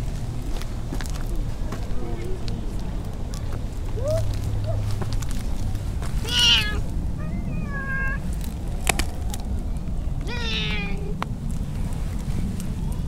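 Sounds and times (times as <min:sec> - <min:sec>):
cat meowing: 0:06.2 - 0:08.2, 0:10.2 - 0:11.1.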